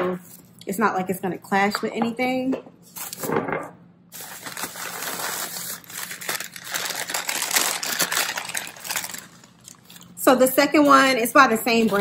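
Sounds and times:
packing paper crinkling: 4.1 - 10.2.

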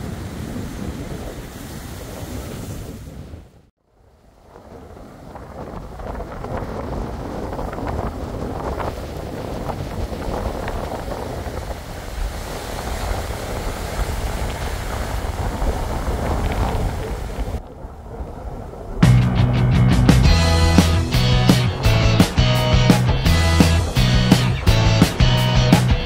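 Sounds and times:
surf breaking on beach: 0.0 - 19.3
wind buffeting microphone: 0.0 - 26.0.

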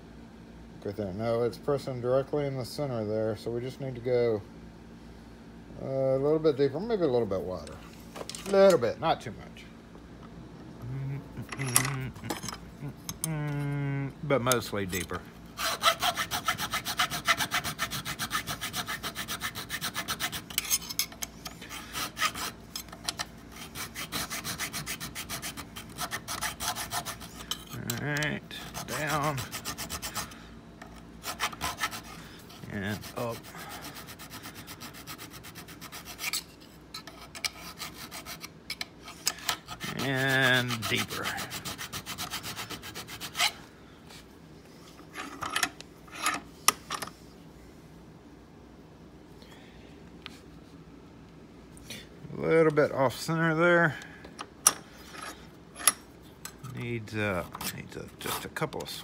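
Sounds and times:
hand file rasping on metal: 14.9 - 27.8, 28.5 - 30.4, 31.2 - 43.6.

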